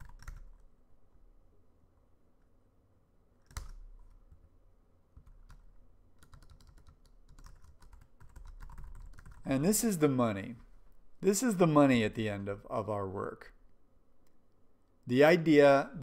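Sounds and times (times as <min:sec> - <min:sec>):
computer keyboard typing: 0:00.0 - 0:00.6, 0:03.4 - 0:04.5, 0:05.2 - 0:09.5.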